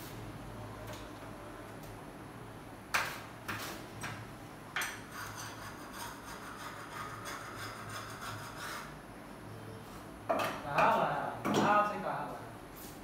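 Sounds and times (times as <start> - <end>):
tool scraping metal frame: 4.8 - 9.0.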